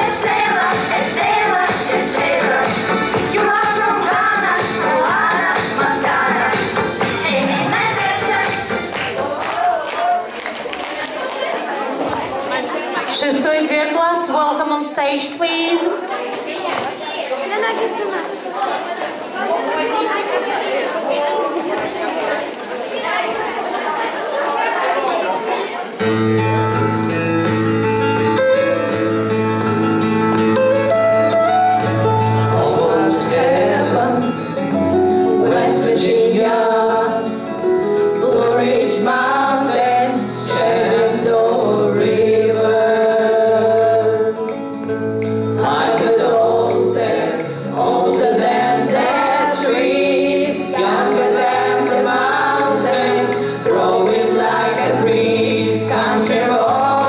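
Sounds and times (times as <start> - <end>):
country music accompaniment with bass: 0.0 - 9.0, 26.0 - 57.0
children singing: 0.0 - 9.4, 32.5 - 34.4, 35.3 - 37.3, 38.2 - 44.4, 45.6 - 57.0.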